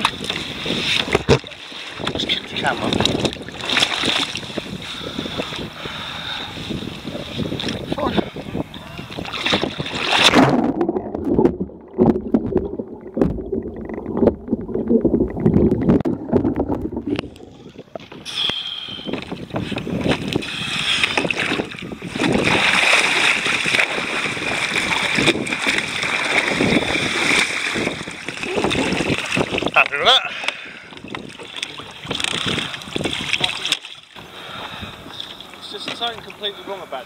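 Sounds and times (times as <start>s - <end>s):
water sloshing: 0.0s - 5.8s, 8.6s - 18.4s, 19.1s - 36.8s
wind noise: 0.0s - 30.0s, 30.6s - 33.8s
muffled underwater bubbling: 7.2s - 22.7s, 27.8s - 33.7s
splash into water: 9.2s - 13.4s, 21.3s - 29.8s.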